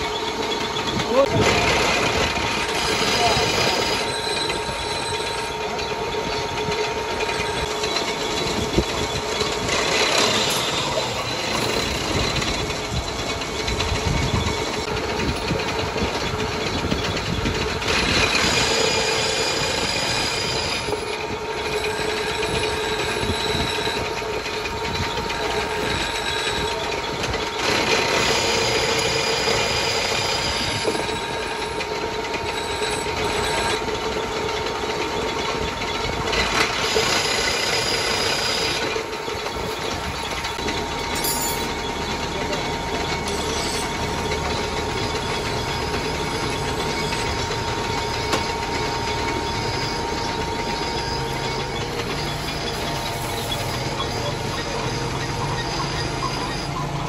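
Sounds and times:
metal lathe humming: 0.0 - 57.0
tool cutting metal thread: 0.9 - 13.8.

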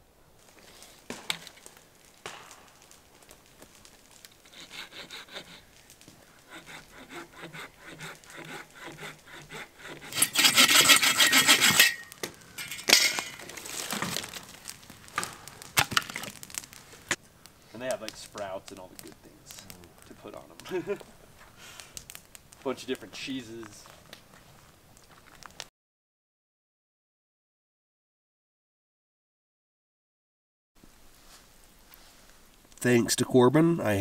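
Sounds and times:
hand saw cutting log: 4.4 - 5.6, 6.5 - 12.2.

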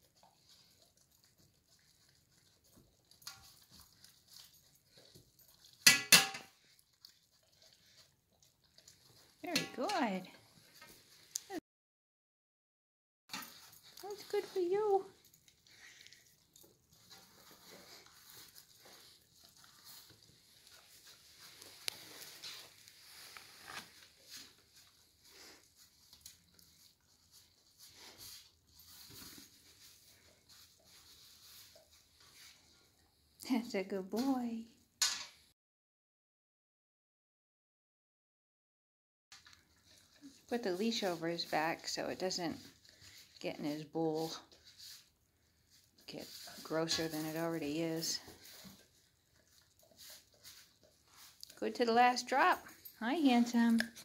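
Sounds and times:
puppy licking metal pan: 0.0 - 11.6, 13.3 - 33.0, 39.4 - 54.0
metal pan clanks: 5.9 - 6.5.

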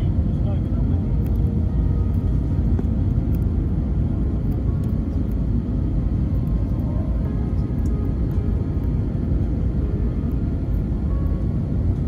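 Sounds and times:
airliner cabin engine rumble: 0.0 - 12.0.

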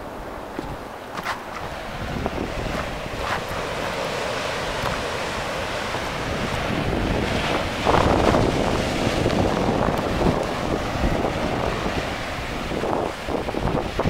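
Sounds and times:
ocean surf: 0.0 - 14.0
wind buffeting microphone: 0.0 - 14.0.

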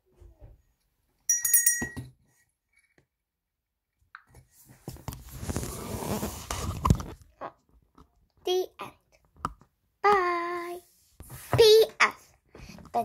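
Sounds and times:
bright tablet chime: 1.3 - 2.1.

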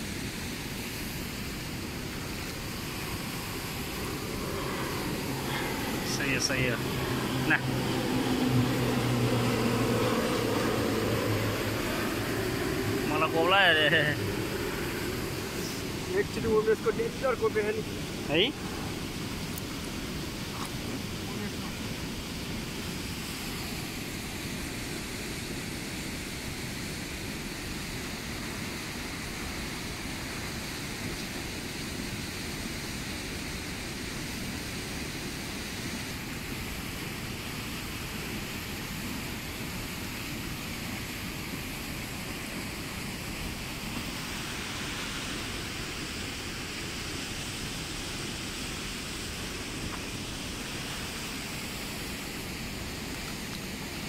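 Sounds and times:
river rushing: 0.0 - 54.0.

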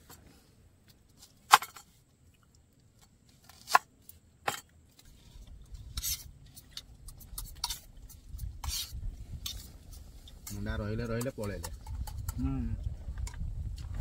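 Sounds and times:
hand mixing food in steel plate: 4.9 - 12.4.

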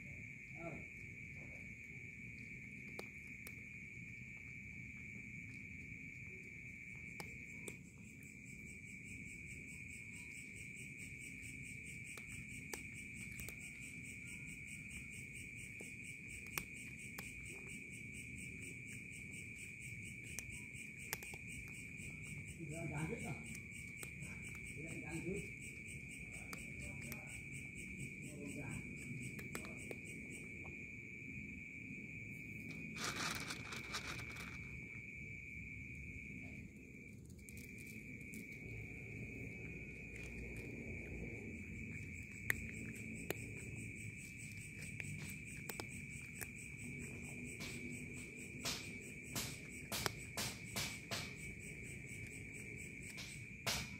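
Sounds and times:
crickets chirring: 0.0 - 53.9
kitten chewing dry food: 0.9 - 31.1, 32.3 - 35.0, 36.4 - 53.9
short rustle: 32.9 - 34.7.

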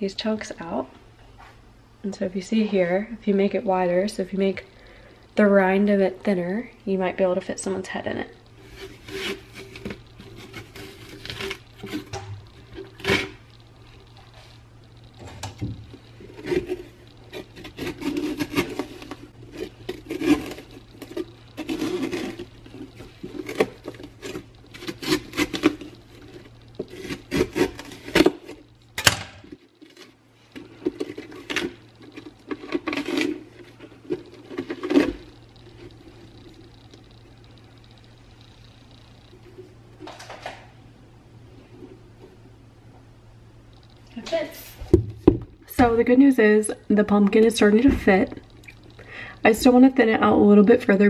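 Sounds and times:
knife scraping pumpkin: 8.6 - 13.6, 16.0 - 28.7, 29.8 - 36.8.

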